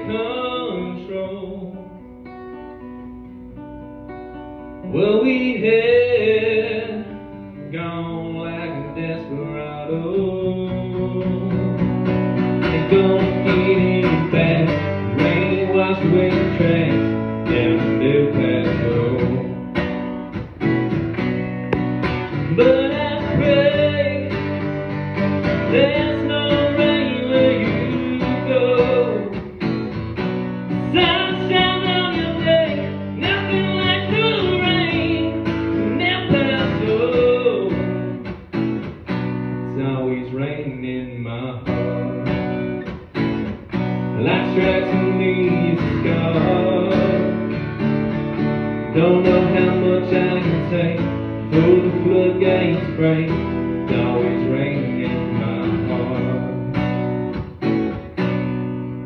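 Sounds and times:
man singing: 0:00.0 - 0:02.1, 0:04.8 - 0:19.8, 0:21.7 - 0:24.7, 0:25.3 - 0:29.8, 0:30.7 - 0:38.2, 0:39.6 - 0:42.8, 0:44.2 - 0:47.6, 0:48.7 - 0:57.0
acoustic guitar strumming: 0:00.0 - 0:59.0.

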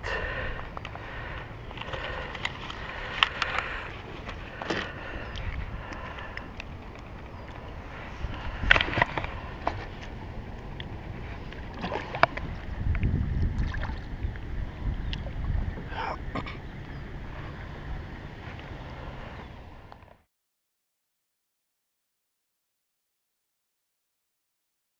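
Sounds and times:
water sloshing against a dock: 0:00.0 - 0:20.0
wind rumbling on microphone: 0:00.0 - 0:20.2
knocks and splashes: 0:11.5 - 0:14.2.

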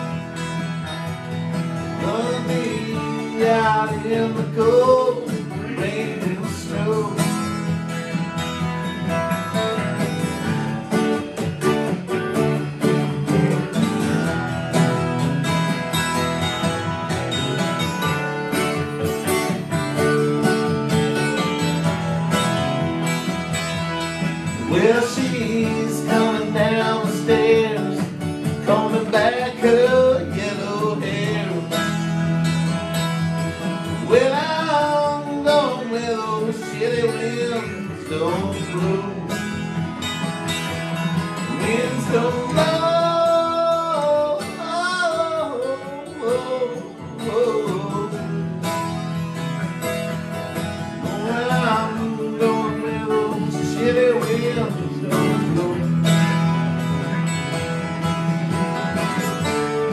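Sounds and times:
acoustic guitar strumming: 0:00.0 - 0:59.9
man singing: 0:01.8 - 0:08.1, 0:24.4 - 0:32.4, 0:33.8 - 0:39.8, 0:41.3 - 0:49.0, 0:50.8 - 0:56.5.

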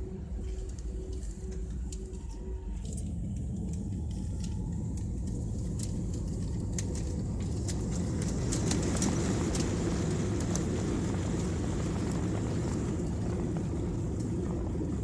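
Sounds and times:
jet engines and wheels rumbling: 0:00.0 - 0:15.0.

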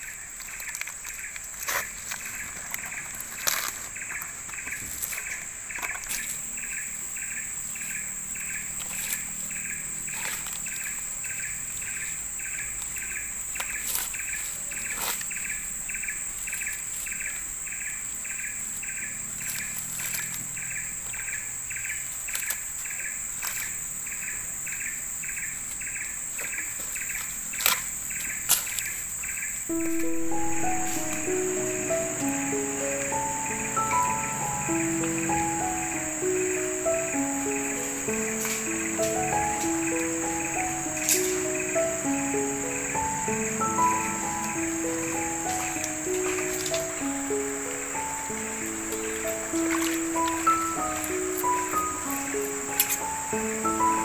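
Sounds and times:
high-pitched insect drone: 0:02.8 - 0:22.0, 0:29.7 - 0:54.0
music: 0:29.7 - 0:54.0.

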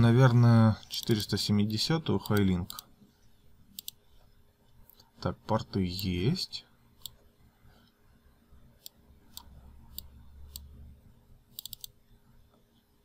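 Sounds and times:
computer mouse clicking: 0:02.2 - 0:02.8, 0:03.7 - 0:04.0, 0:07.0 - 0:07.2, 0:08.8 - 0:10.7, 0:11.5 - 0:12.0.

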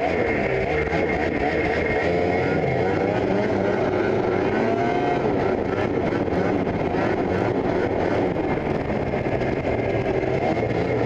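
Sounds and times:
snowmobile engine running: 0:00.0 - 0:11.0.

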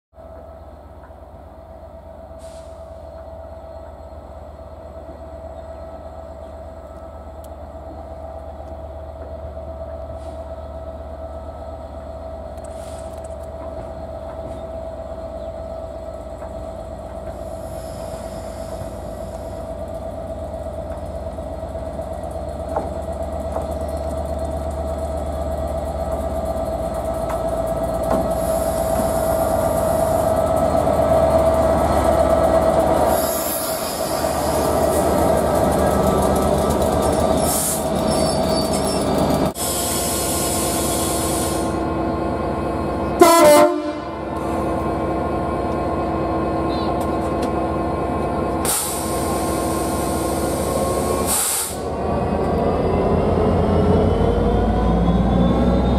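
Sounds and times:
diesel locomotive passing: 0:00.2 - 0:55.9.

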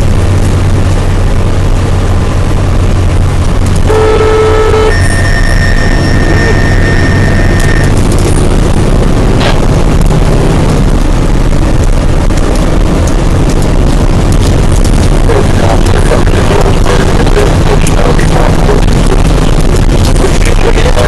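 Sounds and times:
diesel engine and road noise: 0:00.0 - 0:21.0
steady high tone: 0:03.8 - 0:08.3.

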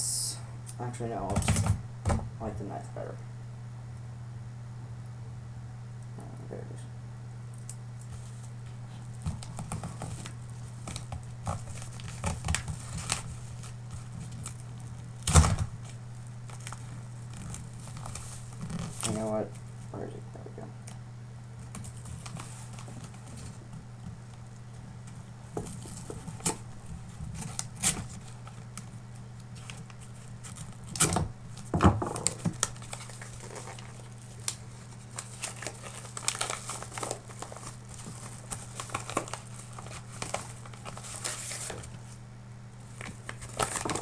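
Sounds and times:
steady low hum: 0:00.0 - 0:44.0
paper envelope crinkling and tearing: 0:08.0 - 0:19.9, 0:21.6 - 0:42.2, 0:42.8 - 0:44.0.

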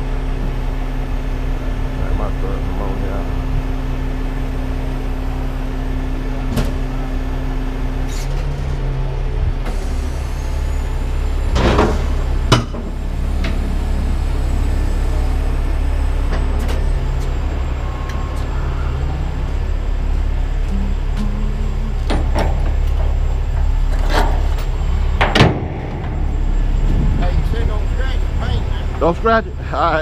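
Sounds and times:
diesel truck engine running: 0:00.0 - 0:30.0.

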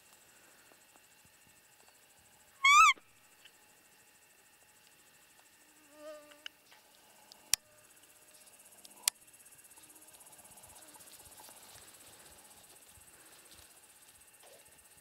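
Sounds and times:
insects chirring: 0:00.0 - 0:15.0
short pitched call: 0:02.6 - 0:03.0.

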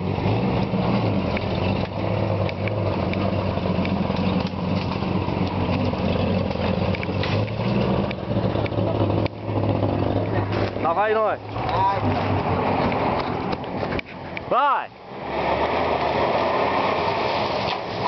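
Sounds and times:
off-road engines running slowly: 0:00.0 - 0:18.0
branches snapping against vehicles: 0:01.3 - 0:09.4, 0:16.6 - 0:18.0.

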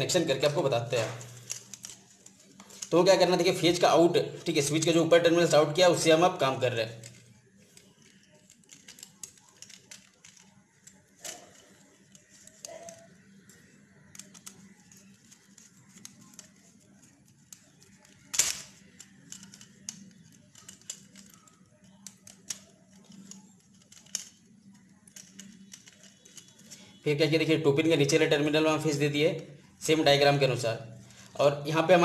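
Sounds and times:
screwdriver clicking and scraping: 0:07.0 - 0:26.8.

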